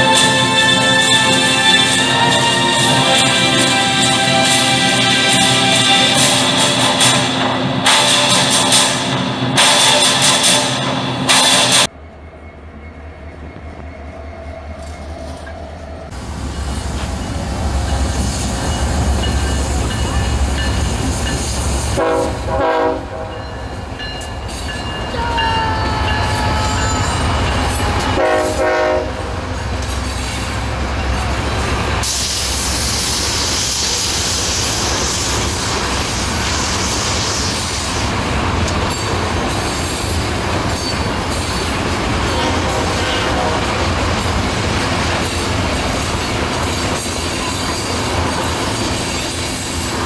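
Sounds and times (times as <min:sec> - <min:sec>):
train air horn blasts: 0:00.0 - 0:07.1, 0:07.8 - 0:11.9, 0:21.8 - 0:23.5, 0:25.3 - 0:29.5, 0:42.2 - 0:44.0
locomotive engines rumbling: 0:00.0 - 0:50.0
high hiss: 0:31.8 - 0:38.1
wheels on rails: 0:43.8 - 0:50.0.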